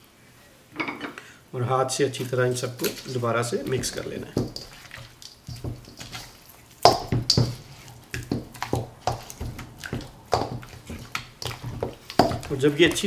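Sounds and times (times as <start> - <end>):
hand squelching meat in marinade: 2.6 - 13.0.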